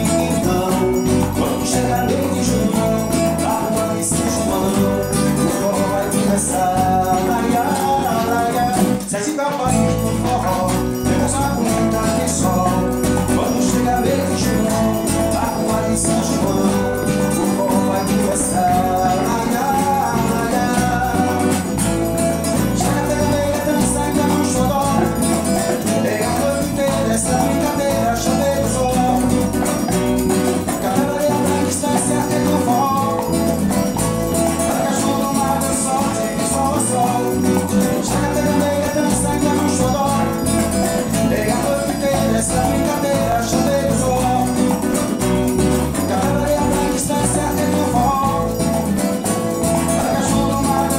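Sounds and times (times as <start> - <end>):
band playing dance music: 0.0 - 50.9
man singing: 0.0 - 50.9.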